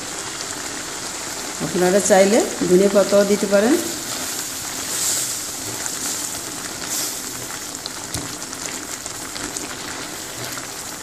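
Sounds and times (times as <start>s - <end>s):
gravy bubbling and sizzling: 0.0s - 11.0s
spatula stirring: 3.9s - 11.0s.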